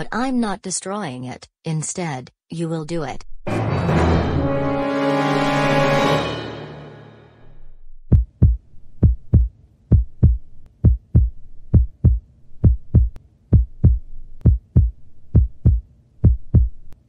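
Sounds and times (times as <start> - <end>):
heartbeat thumps: 8.1 - 17.0.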